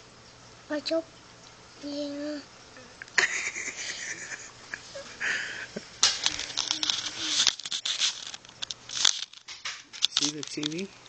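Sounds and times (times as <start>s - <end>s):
faint held hum: 0.0s - 11.0s
rustling and crinkling with clicks: 6.0s - 11.0s.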